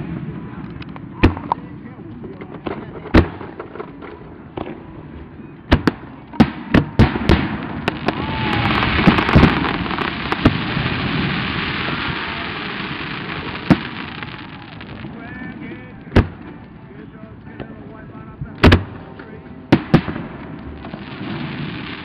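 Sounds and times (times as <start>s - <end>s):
firework shells bursting with bangs: 5.7s - 15.2s
hissing crackle of burning stars: 7.3s - 18.0s, 19.8s - 22.0s.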